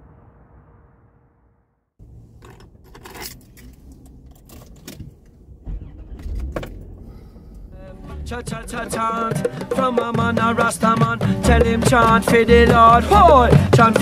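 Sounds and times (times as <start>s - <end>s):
keys jingling: 2.4s - 4.8s
low thump: 4.9s - 11.1s.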